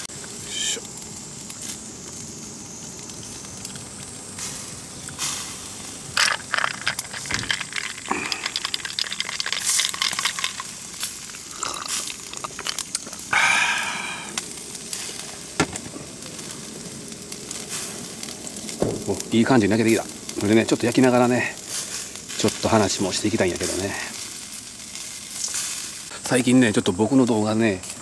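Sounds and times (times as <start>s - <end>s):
skewers sizzling over charcoal grill: 0.0s - 28.0s
irregular crackling ticks: 0.2s - 13.3s
lemon pieces dropping into cup: 6.2s - 10.8s, 11.4s - 13.2s.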